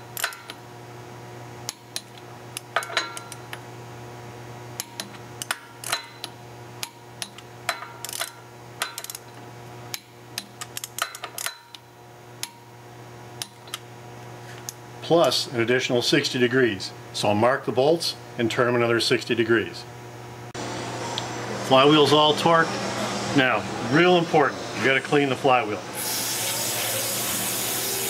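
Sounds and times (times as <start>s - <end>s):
steady low hum: 0.0s - 26.0s
ratchet wrench clicking: 8.0s - 8.3s.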